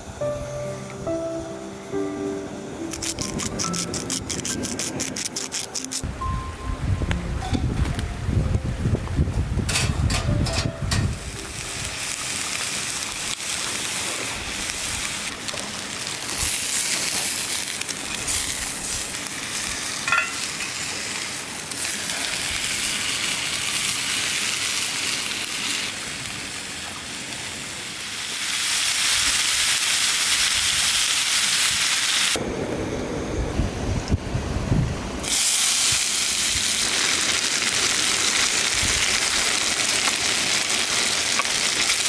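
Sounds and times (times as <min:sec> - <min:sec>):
steak sizzling in a pan: 0:02.7 - 0:06.0, 0:11.1 - 0:26.6, 0:27.2 - 0:32.4, 0:35.2 - 0:42.0.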